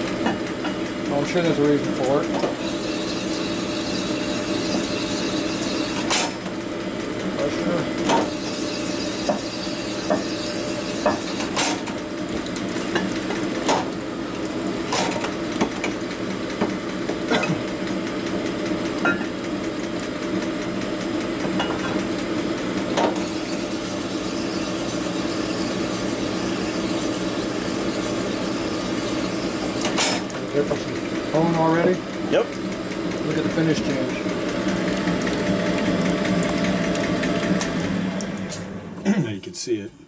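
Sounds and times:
machine motor humming: 22.1 - 39.1.

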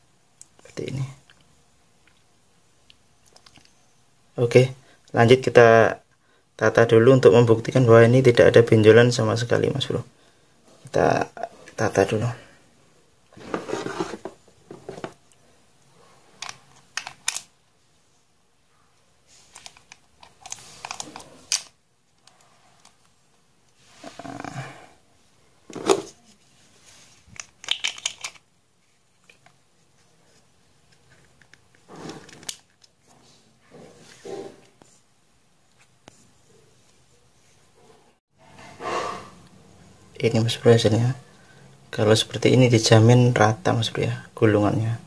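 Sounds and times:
fishing reel parts clicking and rubbing: 27.4 - 28.4.

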